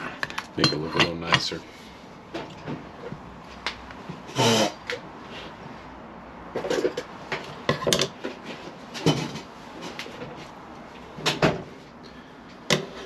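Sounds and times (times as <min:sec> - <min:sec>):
tools clattering on a workbench: 0:00.2 - 0:01.6, 0:06.6 - 0:10.4.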